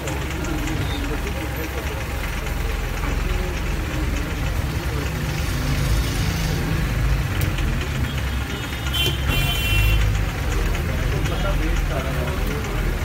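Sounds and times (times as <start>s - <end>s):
machine low drone: 0.0s - 8.8s.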